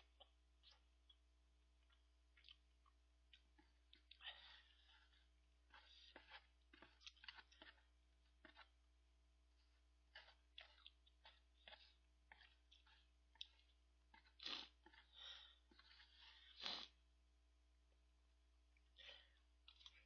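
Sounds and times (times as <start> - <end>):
chewing: 1.8 - 8.8, 9.6 - 17.0, 18.8 - 20.0.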